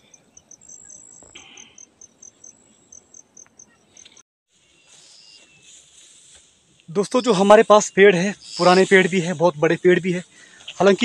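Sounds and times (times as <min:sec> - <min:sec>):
insect chirping: 0:00.0 - 0:04.2, 0:07.0 - 0:11.0
soft rustle: 0:04.0 - 0:06.9.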